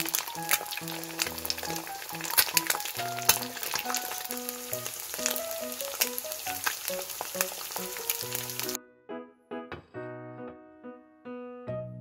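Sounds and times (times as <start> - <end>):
egg sizzling and popping in oil: 0.0 - 8.8.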